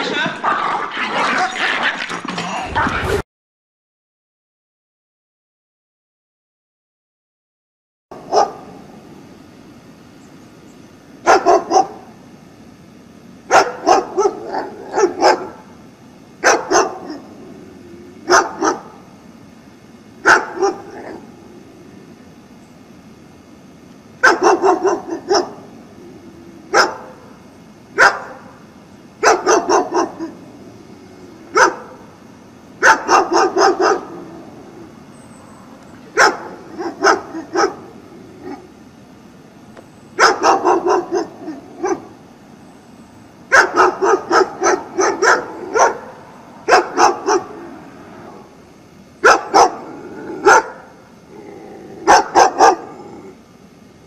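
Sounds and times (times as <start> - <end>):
dog barking loudly: 0.0 - 1.8, 8.2 - 8.7, 11.2 - 12.1, 13.5 - 15.7, 16.4 - 17.3, 18.2 - 19.0, 20.2 - 21.2, 24.2 - 25.6, 26.7 - 27.2, 28.0 - 28.5, 29.2 - 30.4, 31.5 - 32.0, 32.8 - 34.2, 36.1 - 38.6, 40.2 - 42.2, 43.5 - 47.6, 49.2 - 50.9, 52.0 - 53.0.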